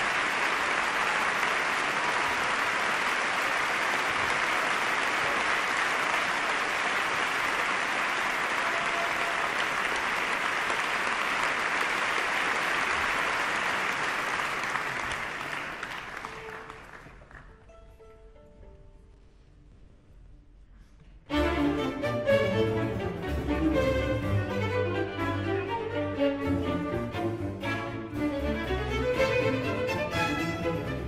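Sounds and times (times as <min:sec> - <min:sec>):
audience applauding: 0:00.0 - 0:17.5.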